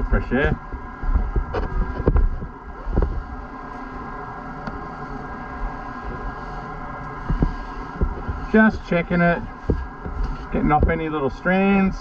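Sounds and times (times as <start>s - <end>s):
steady mechanical hum: 0.0s - 12.0s
dull knock: 9.6s - 10.2s.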